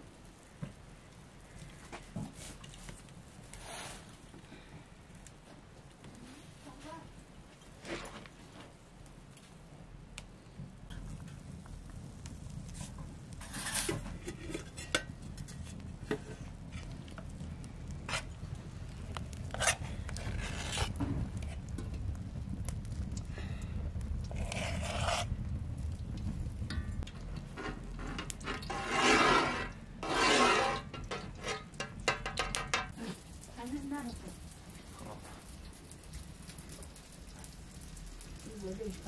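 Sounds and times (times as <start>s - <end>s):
fire crackling: 0.0s - 39.0s
low steady rumble: 9.6s - 39.0s
metal scraping and clinking: 13.4s - 16.4s, 27.5s - 32.9s.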